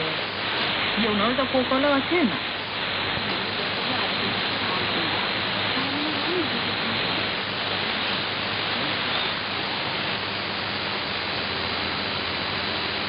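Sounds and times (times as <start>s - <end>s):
shortwave radio static hiss: 0.0s - 13.0s
faint high whistle: 9.1s - 9.4s.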